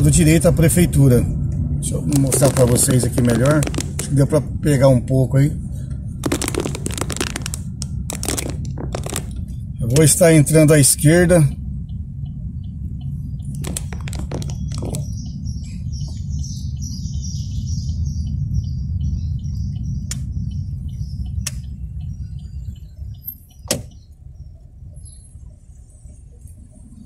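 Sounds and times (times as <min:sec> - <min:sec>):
car engine and tyres rumbling: 0:00.0 - 0:27.0
sharp clicks: 0:13.0 - 0:15.4, 0:21.4 - 0:21.7.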